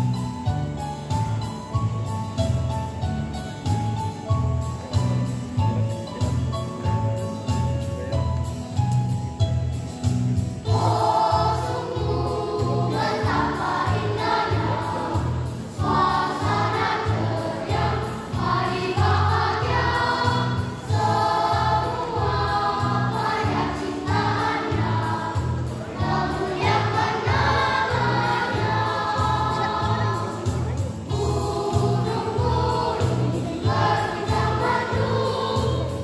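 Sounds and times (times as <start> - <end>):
children's choir singing: 10.6 - 36.0.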